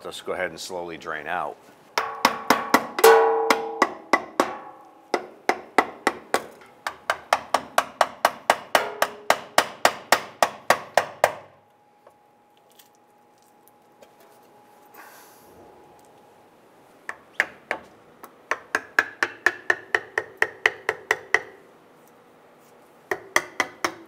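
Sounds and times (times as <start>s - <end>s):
hammer tapping metal tool: 2.0s - 11.5s, 18.5s - 21.6s, 23.1s - 24.0s.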